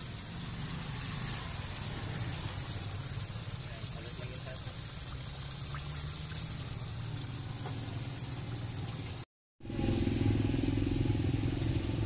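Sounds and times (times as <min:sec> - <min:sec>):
hot oil sizzling: 0:00.0 - 0:12.0
low engine hum: 0:09.6 - 0:12.0.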